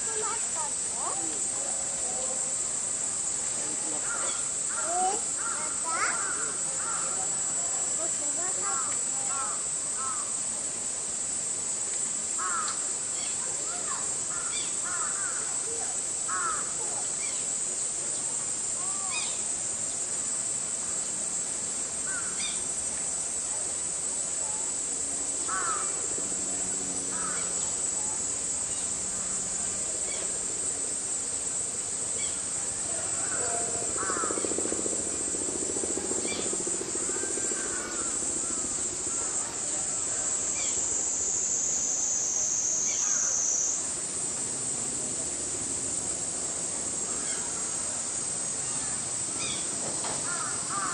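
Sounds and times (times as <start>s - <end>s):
cicadas droning: 0.0s - 50.9s
birds calling: 3.9s - 7.2s, 25.5s - 25.9s, 32.1s - 40.8s, 49.4s - 50.9s.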